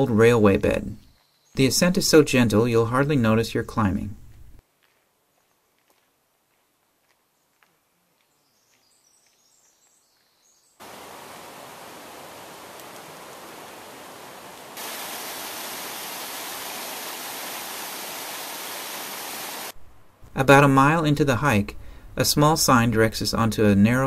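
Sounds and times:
creek water cascading over rocks: 0:10.8 - 0:19.8.

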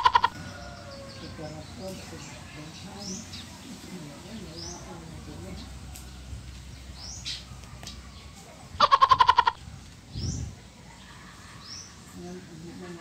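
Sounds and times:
small birds chirping: 0:00.0 - 0:13.0
pulsed animal call: 0:08.8 - 0:09.6.

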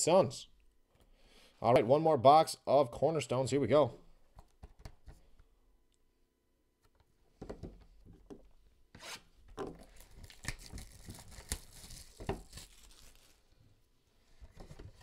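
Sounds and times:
plastic wrapping tearing and crinkling: 0:09.8 - 0:13.5.

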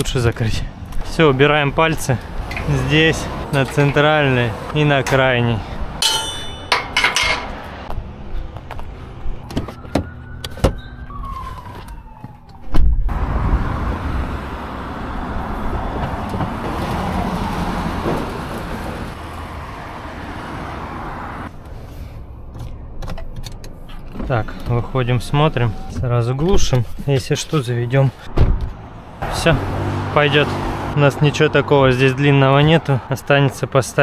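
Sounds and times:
vehicle engine starting and running: 0:00.0 - 0:06.0, 0:13.1 - 0:25.0, 0:28.2 - 0:32.3.

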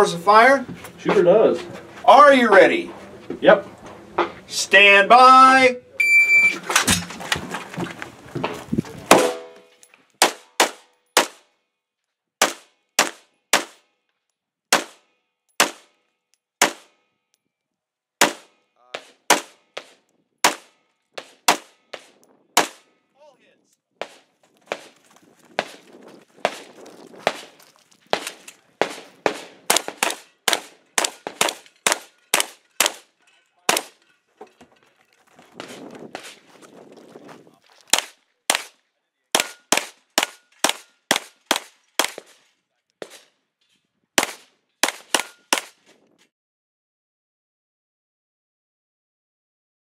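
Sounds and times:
gunshots: 0:09.1 - 0:09.6, 0:10.2 - 0:11.4, 0:12.4 - 0:13.8, 0:14.7 - 0:15.0, 0:15.6 - 0:15.9, 0:16.6 - 0:17.0, 0:18.2 - 0:22.9, 0:26.4 - 0:33.1, 0:33.7 - 0:34.0, 0:37.9 - 0:38.8, 0:39.4 - 0:42.4, 0:44.2 - 0:45.8
steel targets ringing: 0:09.1 - 0:09.8.

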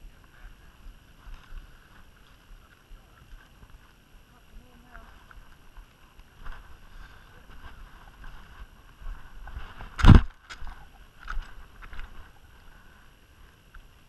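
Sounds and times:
wind rumble on microphone: 0:00.0 - 0:14.0
loud short thump: 0:10.0 - 0:10.3.

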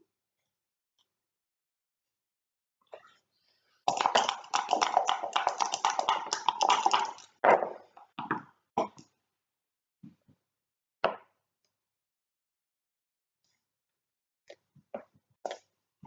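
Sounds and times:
dice rattling in cup: 0:03.9 - 0:07.4
dice clacking on board: 0:03.9 - 0:07.7.

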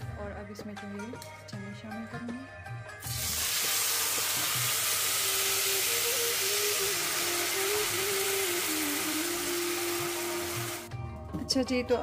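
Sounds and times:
chickpeas sizzling in hot oil: 0:03.0 - 0:10.9.

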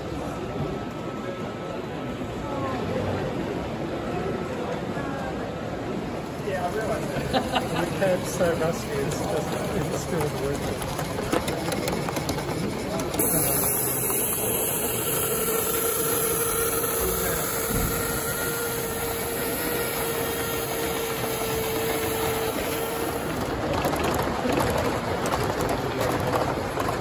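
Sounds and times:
train wheels on track: 0:00.0 - 0:27.0
steam hissing: 0:11.7 - 0:24.6.

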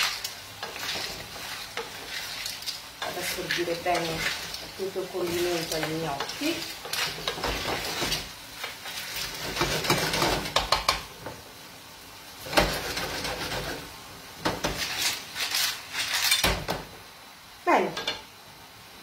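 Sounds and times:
wooden spoon scraping metal pan: 0:00.0 - 0:11.0, 0:12.4 - 0:13.9, 0:14.5 - 0:16.6
food sizzling: 0:00.0 - 0:19.0.

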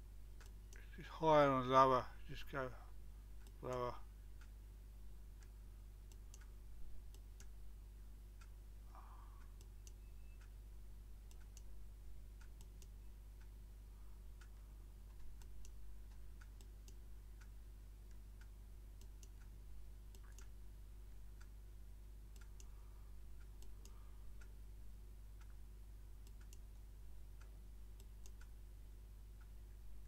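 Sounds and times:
low electrical hum: 0:00.0 - 0:30.0
computer mouse clicks: 0:09.5 - 0:10.5, 0:11.3 - 0:11.7, 0:19.0 - 0:19.5, 0:20.1 - 0:20.5, 0:23.4 - 0:24.5, 0:26.2 - 0:26.8, 0:28.0 - 0:28.6.

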